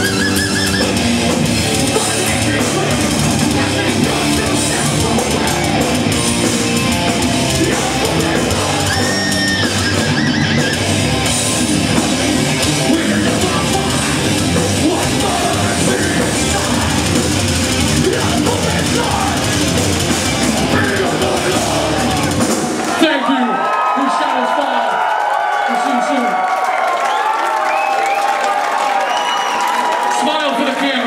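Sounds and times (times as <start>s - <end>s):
heavy metal band playing live: 0.0s - 23.2s
singer yelling vocals: 1.6s - 11.2s, 11.8s - 25.0s.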